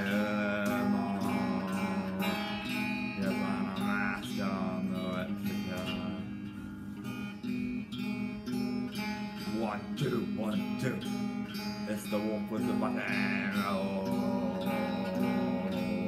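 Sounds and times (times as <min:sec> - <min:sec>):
electric guitar strumming: 0:00.0 - 0:16.0.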